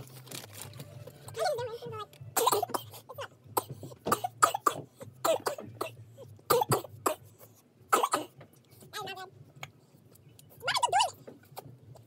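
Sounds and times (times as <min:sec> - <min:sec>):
boy coughing: 0:02.4 - 0:07.3, 0:07.9 - 0:08.4.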